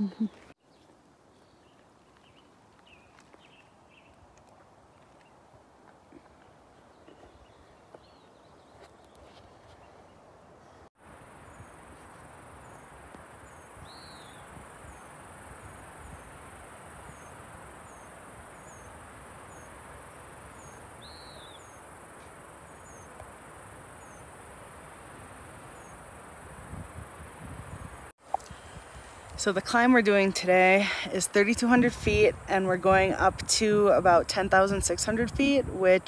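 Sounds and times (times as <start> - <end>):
faint insect chirps: 11.0 - 29.4.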